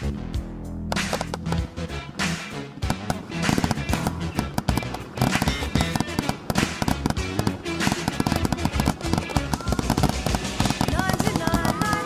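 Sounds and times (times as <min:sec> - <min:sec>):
fireworks bangs and crackle: 0:02.8 - 0:12.0.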